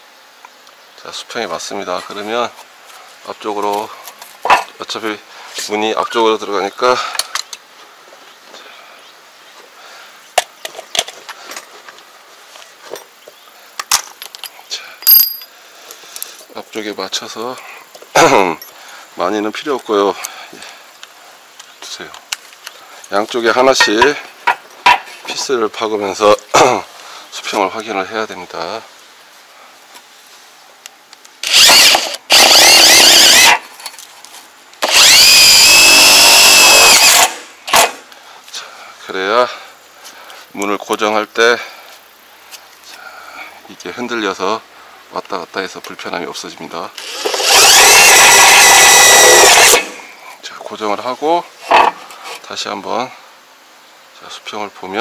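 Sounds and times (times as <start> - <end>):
power drill motor whine: 31.4 - 33.6, 34.8 - 38.0, 47.0 - 50.0.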